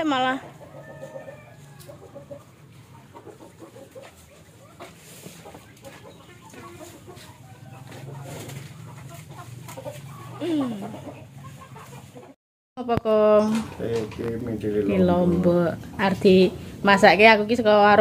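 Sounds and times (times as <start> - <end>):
chickens clucking: 0.0 - 12.4.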